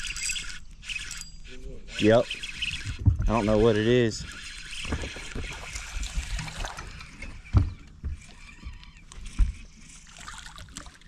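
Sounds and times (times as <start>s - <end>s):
spinning reel reeling in: 0.0s - 11.0s
short dull thumps: 2.6s - 9.9s
fish splashing at water surface: 10.0s - 11.0s.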